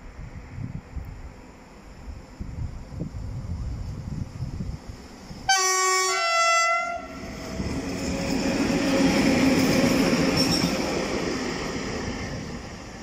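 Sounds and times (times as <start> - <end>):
two-note locomotive horn: 5.5 - 7.2.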